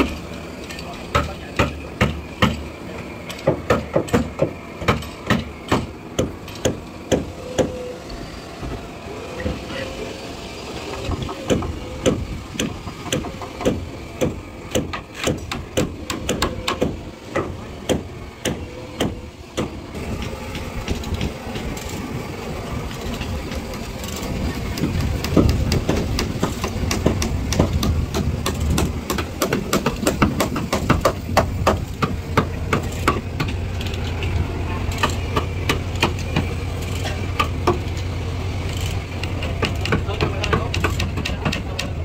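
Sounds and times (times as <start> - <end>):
low engine rumble: 0.0 - 42.0
hammer blows on timber: 24.8 - 33.6.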